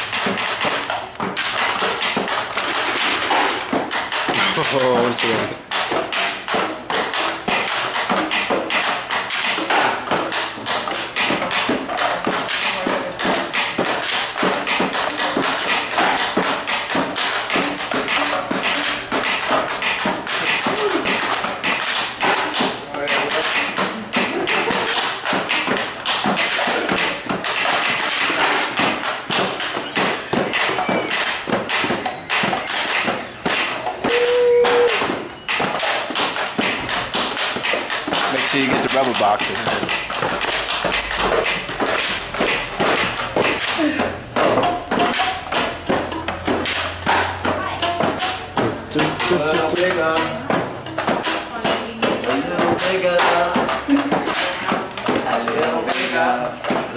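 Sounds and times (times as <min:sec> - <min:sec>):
rubber bands plucked on boxes: 0:00.0 - 0:56.9
voices: 0:33.8 - 0:35.5, 0:47.3 - 0:56.9.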